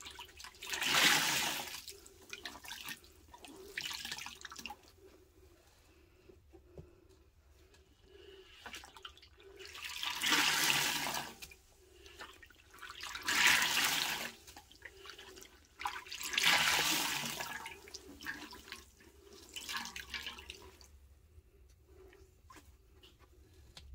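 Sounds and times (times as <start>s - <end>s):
sponge squeezed water splashing: 0.0s - 4.8s.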